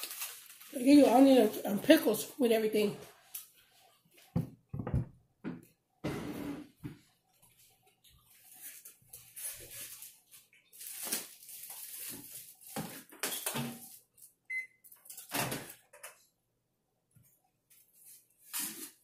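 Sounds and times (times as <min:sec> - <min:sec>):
food packaging rustling and knocking: 0:04.2 - 0:07.1, 0:08.6 - 0:14.1
microwave keypad beep: 0:14.5 - 0:14.8.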